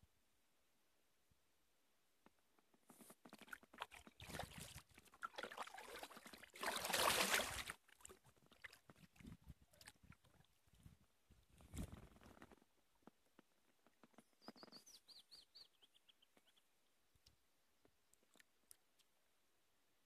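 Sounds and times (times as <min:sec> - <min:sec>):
kayak paddle splashing water: 0:03.3 - 0:10.5.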